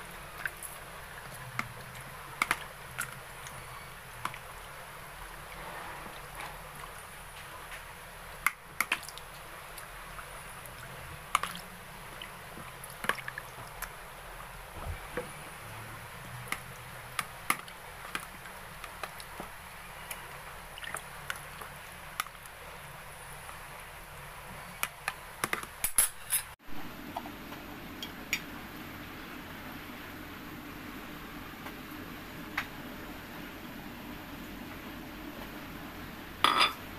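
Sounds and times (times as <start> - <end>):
wet sloshing of sauce: 8.8 - 14.0, 16.4 - 22.4.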